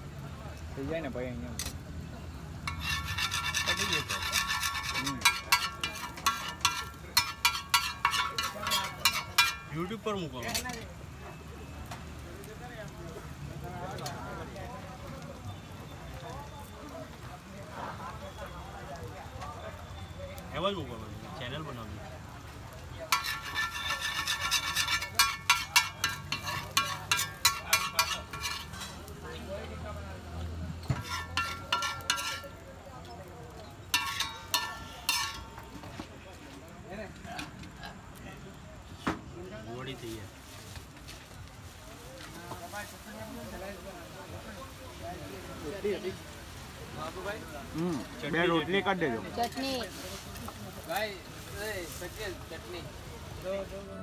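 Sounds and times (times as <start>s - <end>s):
spatula clacking on griddle: 2.6s - 10.9s, 23.0s - 29.8s, 30.8s - 36.0s
spatula scraping metal griddle: 2.6s - 10.9s, 23.0s - 29.6s, 30.8s - 32.9s, 33.5s - 36.0s.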